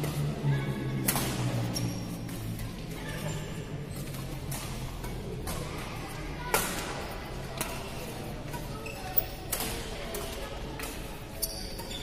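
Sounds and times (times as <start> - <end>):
rackets hitting shuttlecock: 0.0 - 2.9, 3.9 - 8.8, 9.4 - 12.0
murmur of voices: 0.0 - 12.0.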